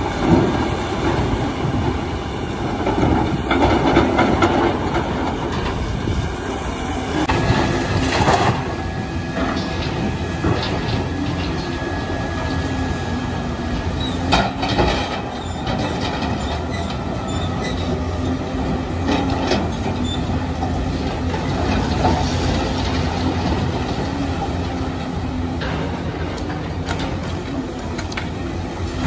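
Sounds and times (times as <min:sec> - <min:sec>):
excavator engine and hydraulics droning: 0:00.0 - 0:29.0.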